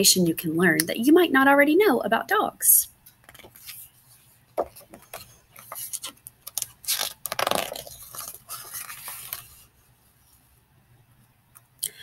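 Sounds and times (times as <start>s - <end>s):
book pages turning: 3.1s - 9.8s.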